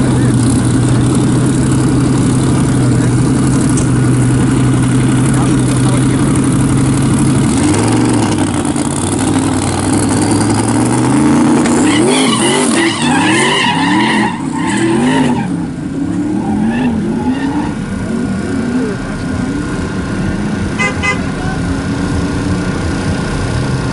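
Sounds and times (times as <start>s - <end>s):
drag car engine revving: 0.0s - 23.9s
tyre squeal: 11.7s - 17.8s.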